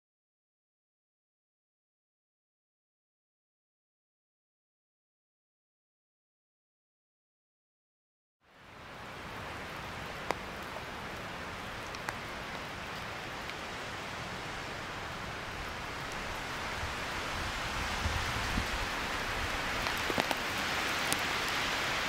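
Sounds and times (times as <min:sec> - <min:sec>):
rain falling in forest: 0:08.4 - 0:22.0.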